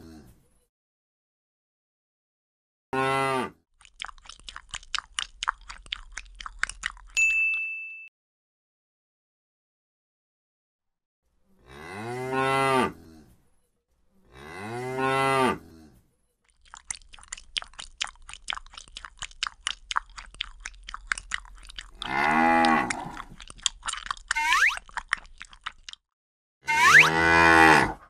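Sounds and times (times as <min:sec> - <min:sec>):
cattle chewing crunchily: 0:03.8 - 0:07.2, 0:16.5 - 0:26.0
cow mooing: 0:22.0 - 0:23.2, 0:26.7 - 0:28.0.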